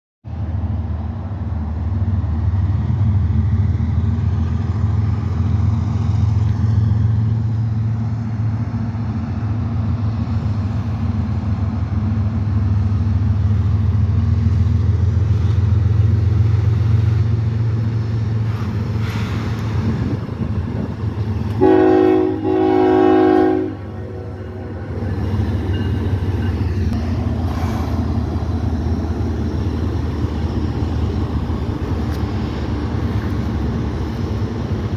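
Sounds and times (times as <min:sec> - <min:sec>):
freight train rumbling over bridge: 0:00.2 - 0:34.9
locomotive air horn: 0:21.6 - 0:24.2.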